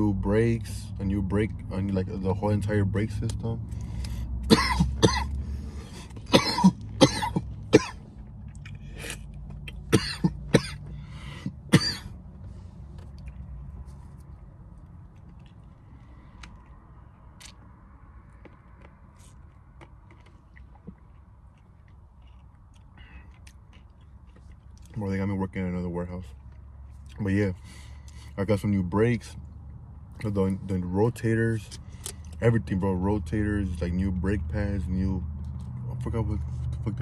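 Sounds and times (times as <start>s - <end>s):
man clearing his throat: 4.5s - 5.4s, 6.3s - 8.0s, 9.9s - 10.9s, 11.7s - 12.1s
man coughing: 4.5s - 5.4s, 6.2s - 8.0s, 9.9s - 12.1s.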